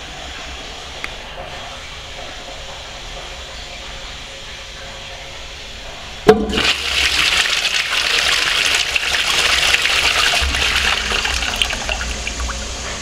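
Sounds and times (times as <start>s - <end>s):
toilet flushing: 6.3s - 13.0s.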